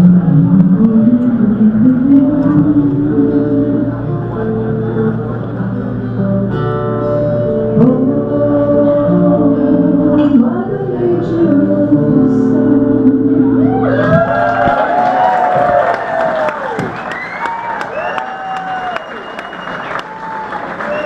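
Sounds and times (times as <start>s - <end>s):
woman singing: 0.0s - 5.2s, 7.6s - 14.4s
acoustic guitar: 0.0s - 21.0s.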